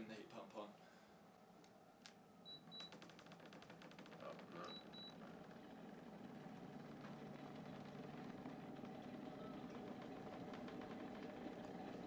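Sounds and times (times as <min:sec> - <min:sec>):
low steady hum of heat pump: 0:04.2 - 0:12.0.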